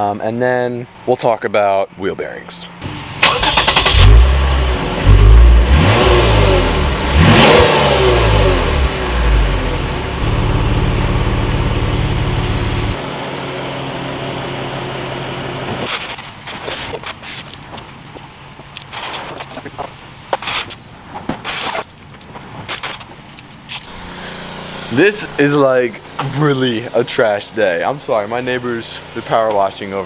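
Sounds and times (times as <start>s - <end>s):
car engine revving and idling: 2.8s - 16.1s, 23.9s - 30.0s.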